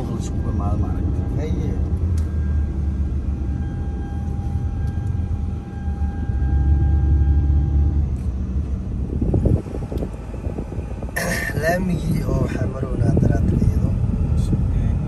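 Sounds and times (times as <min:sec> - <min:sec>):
faint steady high tone: 0:00.0 - 0:08.1
car engine and road rumble: 0:00.0 - 0:15.0.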